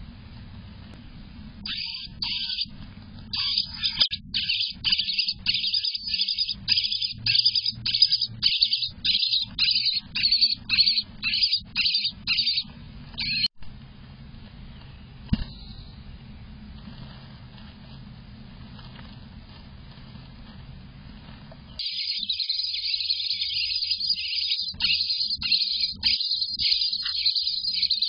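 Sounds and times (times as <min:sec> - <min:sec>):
faint low hum: 0:00.0 - 0:28.0
nestlings begging calls: 0:01.7 - 0:02.7, 0:03.3 - 0:13.5, 0:21.8 - 0:28.0.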